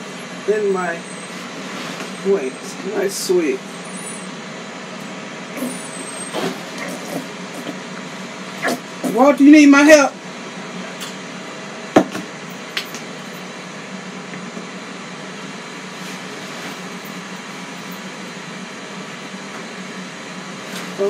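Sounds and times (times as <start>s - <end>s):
fan whirring hum: 0.0s - 21.0s.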